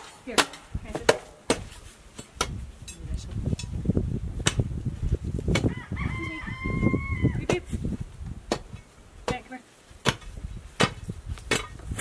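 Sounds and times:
digging bar striking frozen ground: 0.0 - 2.6, 4.4 - 4.7, 5.5 - 5.7, 8.4 - 12.0
shovel scraping dirt: 0.0 - 2.6.

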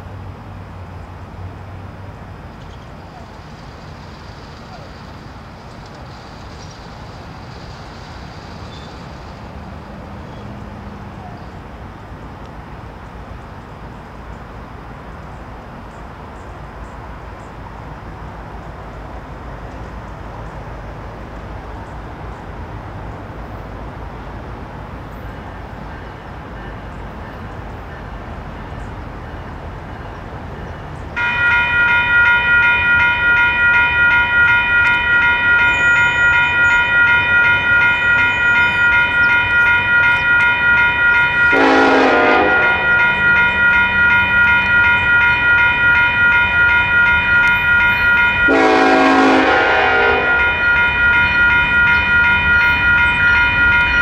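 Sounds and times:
railroad crossing bells ringing: 20.2 - 54.0
locomotive horn blasts: 31.2 - 54.0.

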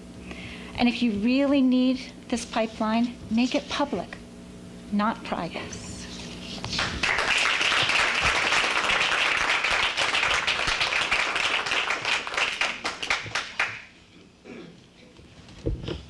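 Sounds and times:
audience applauding: 6.8 - 13.9.

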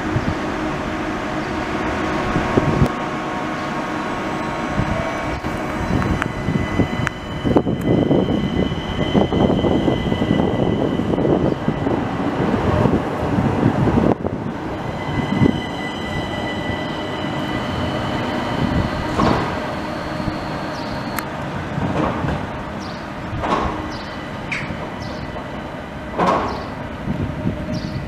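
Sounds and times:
tram wheels rumbling on rails: 0.0 - 28.0
steady high whine: 0.1 - 21.5.

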